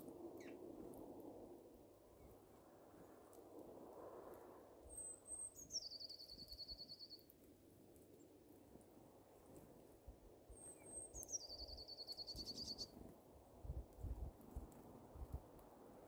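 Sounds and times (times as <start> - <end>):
bird singing high notes and trill: 5.0 - 7.2, 10.6 - 12.9.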